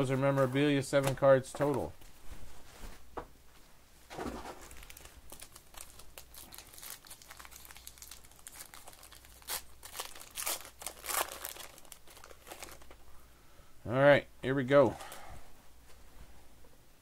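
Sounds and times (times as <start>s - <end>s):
foil wrapper crinkling and tearing: 4.6s - 13.0s.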